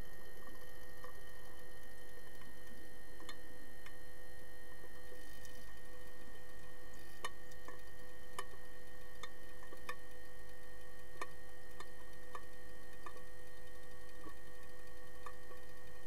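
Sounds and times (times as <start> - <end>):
steady hum with tones: 0.0 - 16.0
sharp underwater clicks: 7.2 - 15.8.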